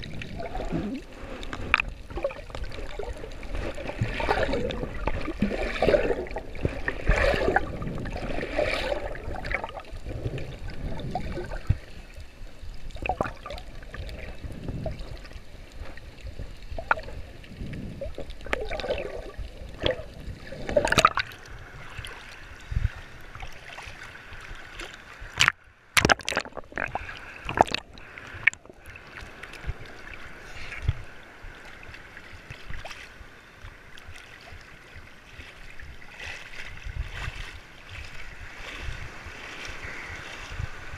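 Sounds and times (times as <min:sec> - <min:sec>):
splashes and knocks: 0:00.0 - 0:11.8, 0:18.5 - 0:21.4, 0:24.8 - 0:28.7
water gurgling and sloshing: 0:00.0 - 0:40.9.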